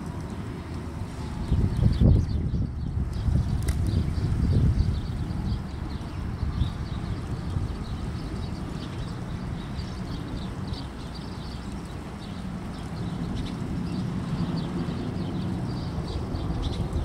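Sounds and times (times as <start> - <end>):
rain pattering: 0.0 - 1.9, 5.8 - 17.0
birds chirping: 1.1 - 17.0.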